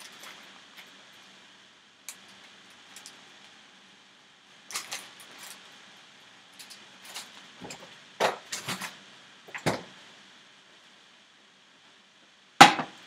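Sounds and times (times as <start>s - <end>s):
kitchen knocks and clunks: 9.5s - 9.9s.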